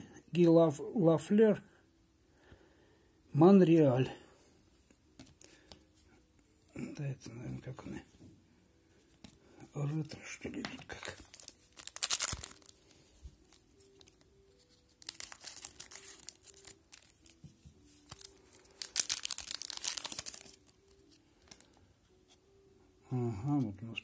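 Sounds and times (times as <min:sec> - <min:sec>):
wrapper tearing and crinkling: 0:10.9 - 0:21.8.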